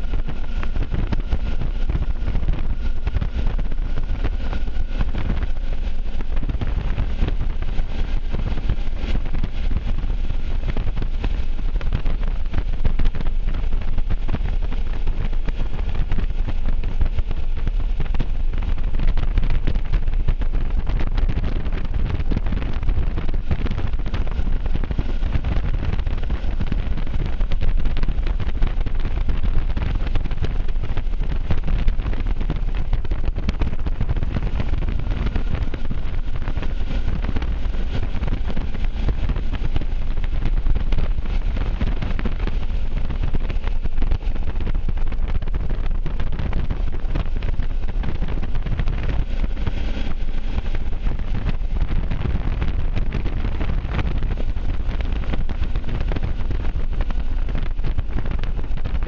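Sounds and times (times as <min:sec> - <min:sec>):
wind rush on microphone: 0:00.0 - 0:59.0
road noise: 0:30.8 - 0:58.0.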